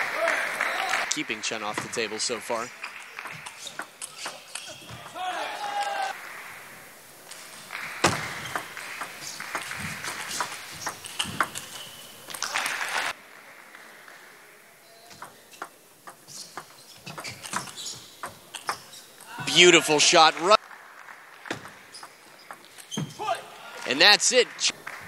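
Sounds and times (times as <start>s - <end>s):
table tennis ball clicks: 7.3s - 12.6s, 15.1s - 19.0s.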